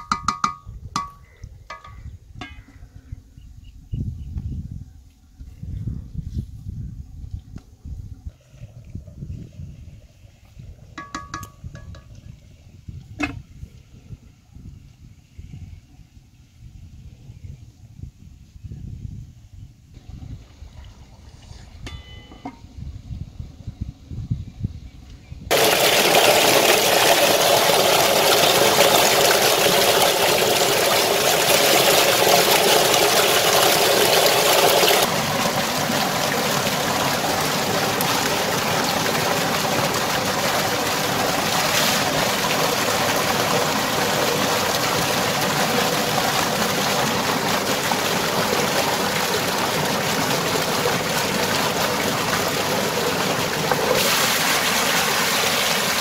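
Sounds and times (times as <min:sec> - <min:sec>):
water gushing into a tank: 0:25.5 - 0:56.0.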